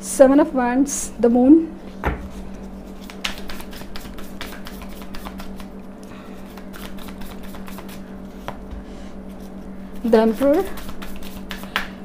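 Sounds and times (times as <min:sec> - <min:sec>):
steady low hum: 0:00.0 - 0:12.0
cards being shuffled: 0:02.3 - 0:08.6, 0:09.4 - 0:12.0.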